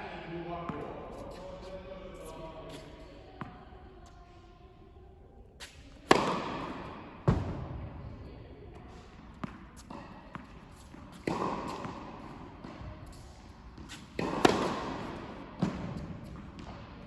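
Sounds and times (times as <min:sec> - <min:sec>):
racket striking tennis ball: 0:05.6 - 0:07.7, 0:09.3 - 0:16.8.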